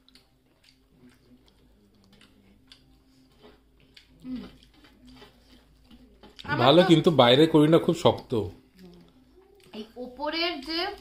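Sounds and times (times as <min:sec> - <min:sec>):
person chewing crunchy food: 0:00.0 - 0:07.2.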